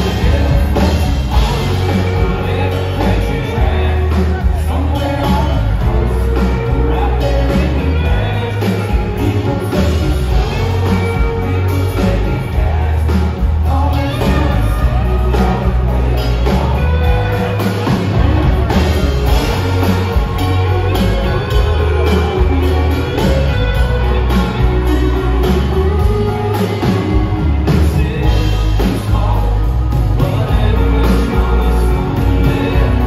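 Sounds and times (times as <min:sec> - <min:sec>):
drum kit: 0:00.0 - 0:33.0
electric guitars: 0:00.0 - 0:33.0
men singing into microphones: 0:00.0 - 0:33.0.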